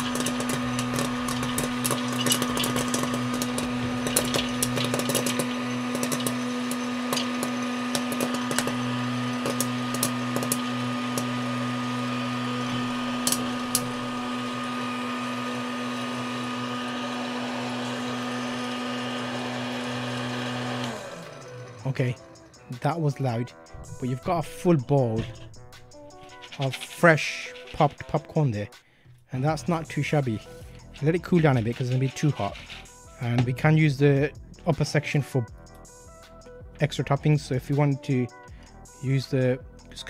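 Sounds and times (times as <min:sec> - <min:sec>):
popcorn kernels popping: 0:00.0 - 0:21.3, 0:23.8 - 0:28.2
popcorn maker motor hum: 0:00.0 - 0:28.3, 0:29.6 - 0:34.7.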